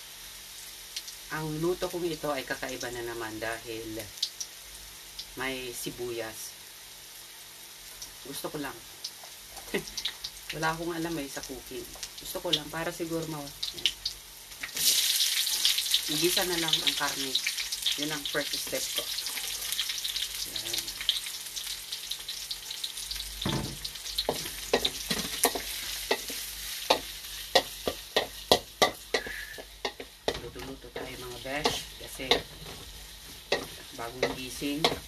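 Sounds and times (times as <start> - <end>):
garlic and onion sizzling in oil: 0.0 - 35.0
wooden spatula scraping a pan: 24.3 - 35.0.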